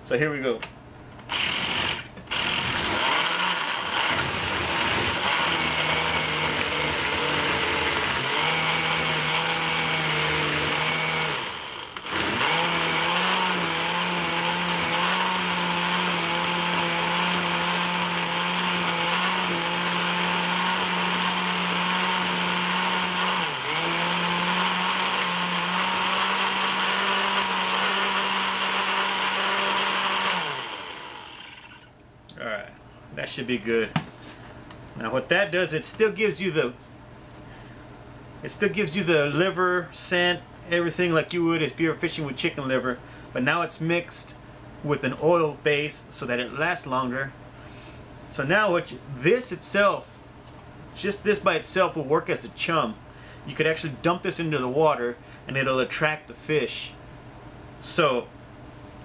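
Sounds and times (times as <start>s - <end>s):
blender running under load: 1.3s - 31.9s.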